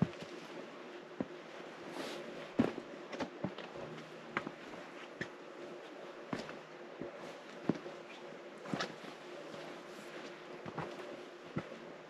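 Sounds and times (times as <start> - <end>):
footsteps on rocky ground: 2.5 - 5.3.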